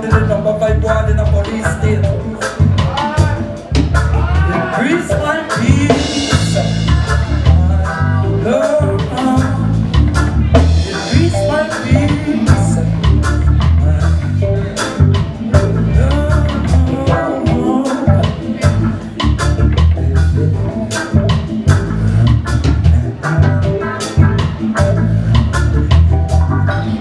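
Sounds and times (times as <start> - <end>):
man singing: 0.0 - 19.3
reggae band playing: 0.0 - 27.0.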